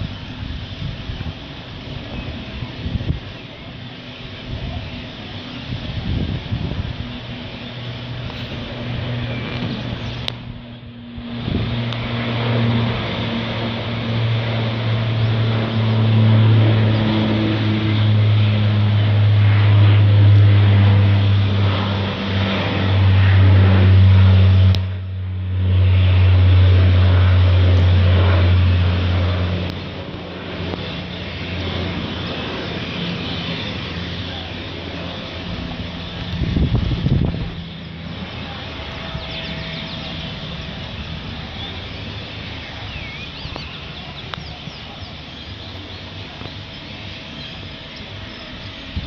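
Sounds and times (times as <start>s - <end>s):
aircraft engines droning overhead: 0.0s - 49.0s.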